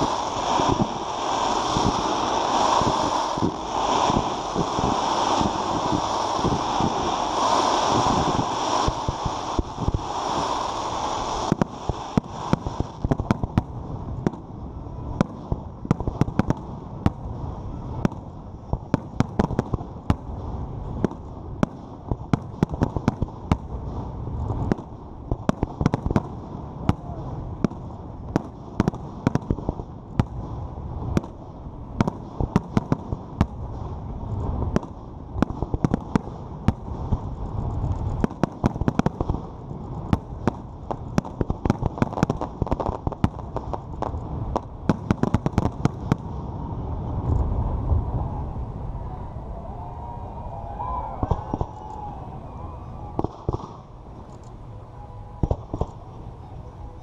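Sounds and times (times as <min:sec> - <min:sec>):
fireworks bursting with sharp bangs: 0:00.0 - 0:48.2, 0:50.0 - 0:57.0
low rumble: 0:46.2 - 0:55.4.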